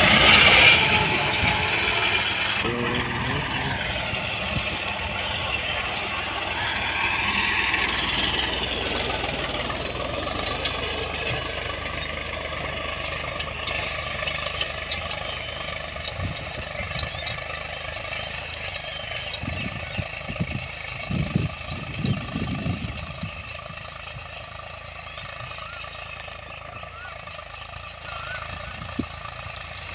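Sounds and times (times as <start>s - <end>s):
tractor engine running: 0.0s - 29.9s.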